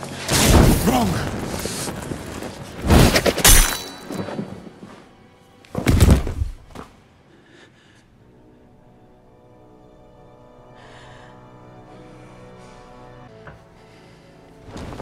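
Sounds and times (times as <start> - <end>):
low dramatic music: 0.0 - 15.0
heavy fight impacts: 5.8 - 6.9.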